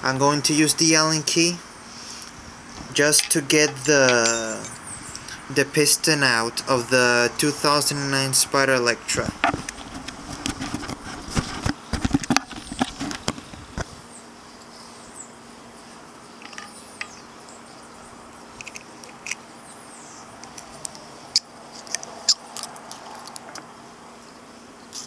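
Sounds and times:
metal parts clicking: 3.2 - 4.8.

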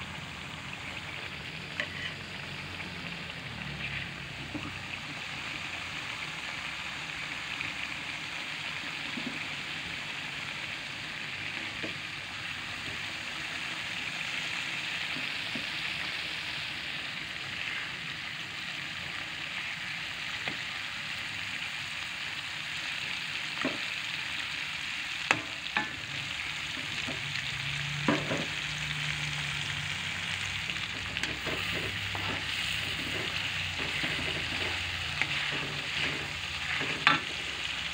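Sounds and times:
sauce sizzling in oil: 0.0 - 37.9
metal spatula scraping wok: 1.7 - 2.3, 3.7 - 4.7, 30.4 - 37.9.

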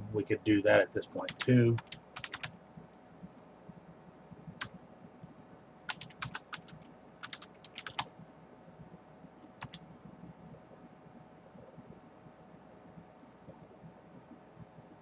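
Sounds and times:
keyboard typing clicks: 1.3 - 2.5, 5.9 - 8.1, 9.6 - 9.8.

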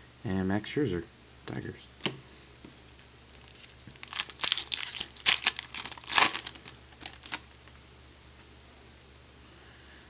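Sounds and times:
foil wrapper tearing and crinkling: 3.4 - 7.6.

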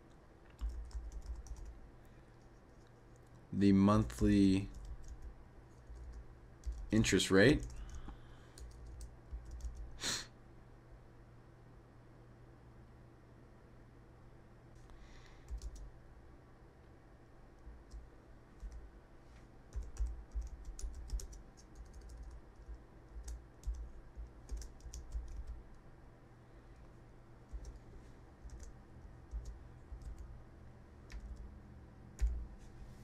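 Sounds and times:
typing on computer keyboard: 0.6 - 1.8, 4.6 - 9.9, 15.4 - 15.9, 19.7 - 25.6, 27.5 - 27.8, 28.4 - 30.3, 31.0 - 31.5, 32.2 - 32.4.

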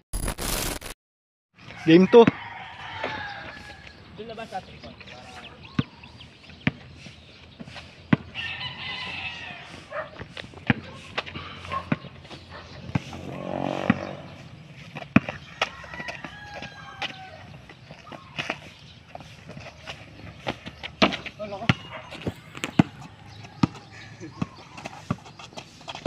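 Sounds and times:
rooster crowing: 1.7 - 3.9, 8.4 - 9.9, 15.6 - 17.5
basketball bouncing on concrete: 2.2 - 3.6, 5.7 - 6.9, 8.1 - 8.4, 10.2 - 14.4, 15.0 - 18.6, 20.4 - 26.0.

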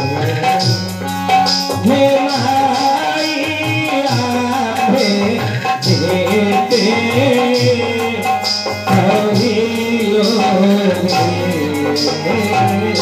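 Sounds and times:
electronic keyboard melody: 0.0 - 13.0
hand drum steady rhythm: 0.0 - 13.0.

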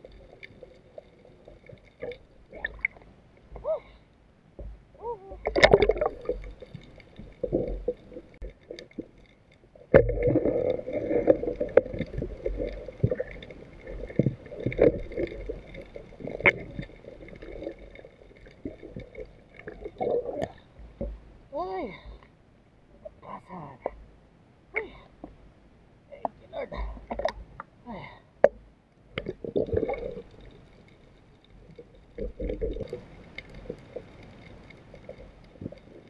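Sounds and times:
water splashing and gurgling: 0.0 - 4.0, 5.0 - 22.1, 29.1 - 36.0.

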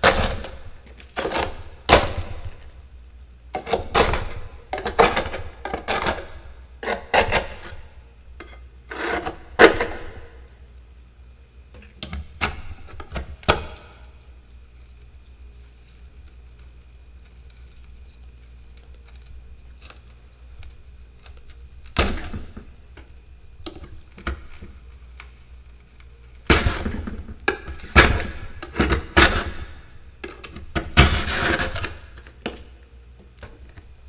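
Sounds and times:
metal spatula scraping frost: 3.6 - 10.1, 30.9 - 32.2.

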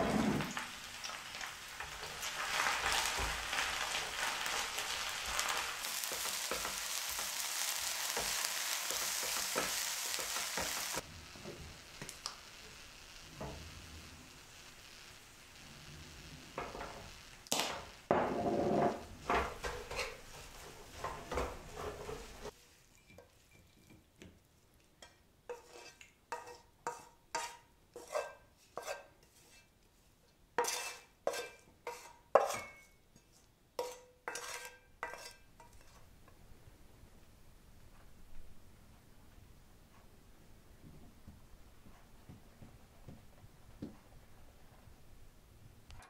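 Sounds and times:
greens sizzling in a frying pan: 0.2 - 23.6
spatula knocking and scraping pan: 1.4 - 11.7, 16.6 - 24.4, 25.0 - 29.7, 30.6 - 36.1
spatula scraping onto ceramic plate: 18.1 - 23.3, 25.5 - 29.7, 30.6 - 32.9, 33.8 - 36.1.

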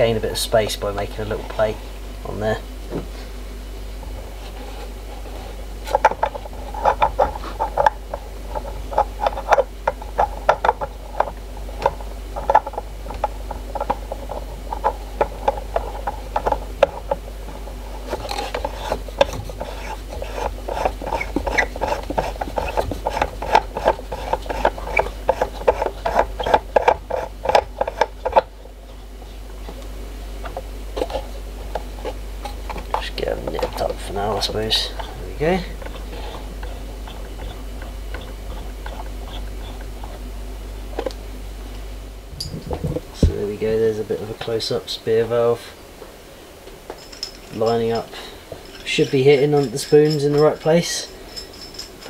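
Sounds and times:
turbine runner clicking and rattling: 5.9 - 29.0, 29.6 - 40.3.

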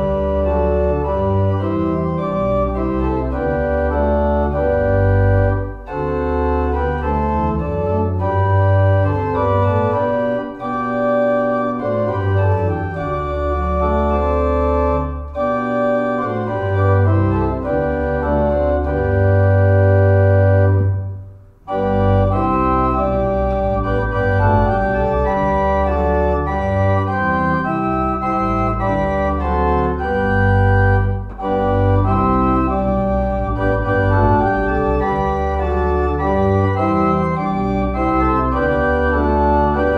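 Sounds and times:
organ music: 0.0 - 39.9.

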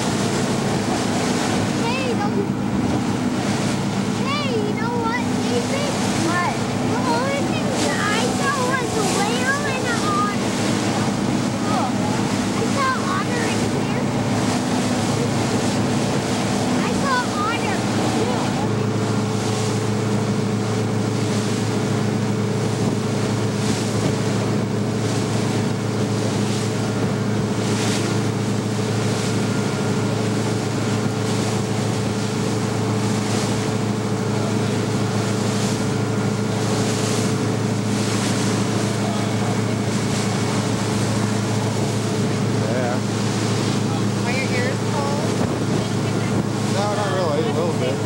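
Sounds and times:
motorboat engine humming: 0.0 - 48.0
wake rushing: 0.0 - 48.0
wind on microphone: 43.3 - 46.8.

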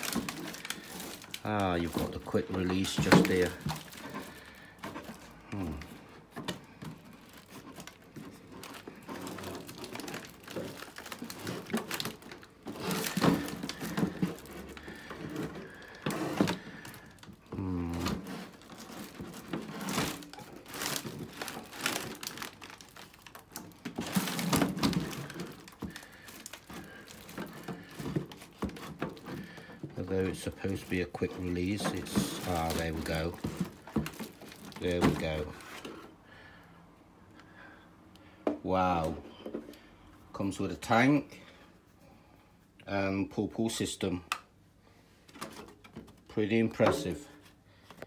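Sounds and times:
plastic packaging crinkling: 0.0 - 36.1.

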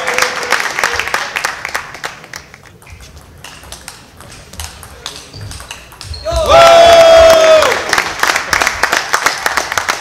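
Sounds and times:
table tennis ball clicking: 2.7 - 6.2.

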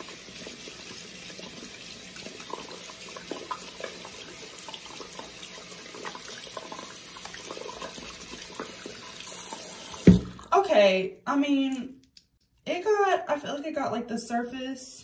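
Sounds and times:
faucet running into sink: 0.0 - 10.6.

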